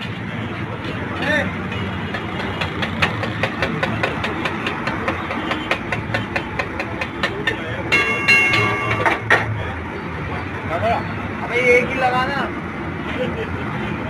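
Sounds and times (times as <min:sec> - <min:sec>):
steady background din: 0:00.0 - 0:14.0.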